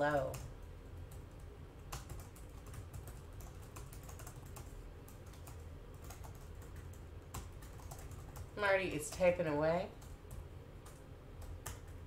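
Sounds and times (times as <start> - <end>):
typing on computer keyboard: 1.1 - 8.5, 10.0 - 12.0.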